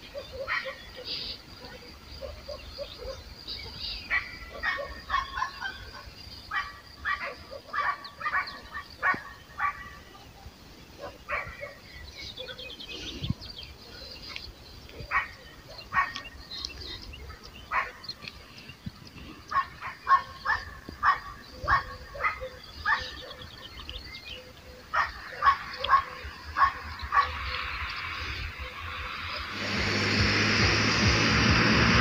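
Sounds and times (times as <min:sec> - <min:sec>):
dog barking: 0:00.1 - 0:10.4, 0:11.0 - 0:12.6, 0:15.0 - 0:16.3, 0:17.2 - 0:18.1, 0:19.5 - 0:23.5, 0:24.8 - 0:27.4.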